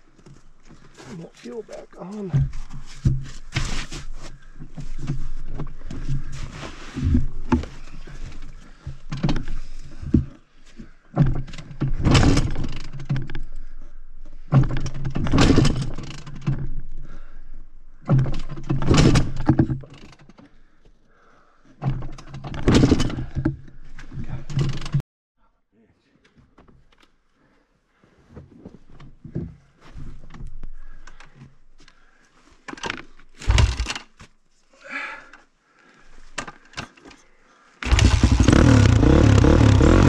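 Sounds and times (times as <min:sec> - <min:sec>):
dirt bike engine revving: 0:37.8 - 0:40.0.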